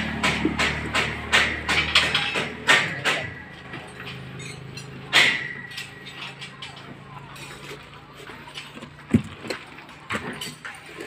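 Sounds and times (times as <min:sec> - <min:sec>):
hammer striking metal: 0:00.0 - 0:06.4
loud metal clank: 0:00.0 - 0:06.7.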